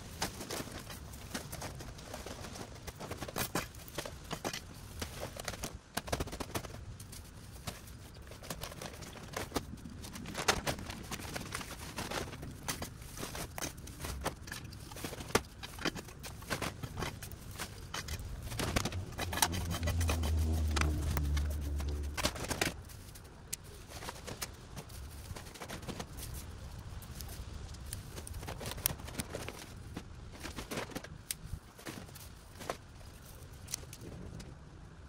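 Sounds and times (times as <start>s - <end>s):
brush crackling and rustling: 0.0s - 34.4s
low engine hum: 17.1s - 22.9s.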